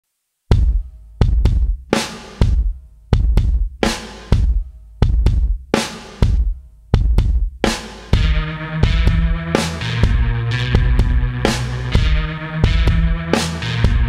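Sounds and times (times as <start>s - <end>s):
bass drum and snare beat: 0.5s - 14.0s
sustained bass note: 8.2s - 14.0s.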